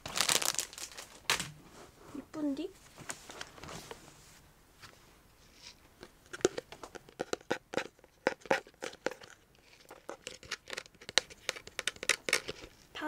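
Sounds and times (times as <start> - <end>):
plastic jar crinkling and clicking: 0.0 - 1.5, 6.0 - 12.9.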